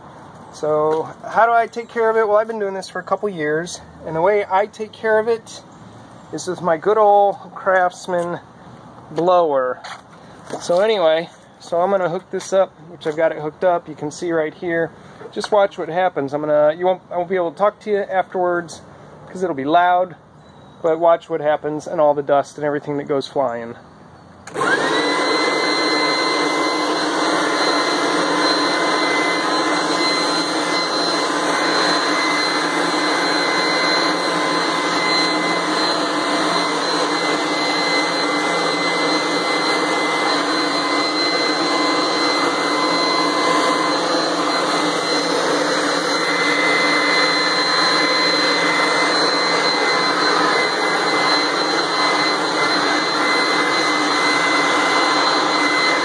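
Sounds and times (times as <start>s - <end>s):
leaf blower running: 24.5s - 56.0s.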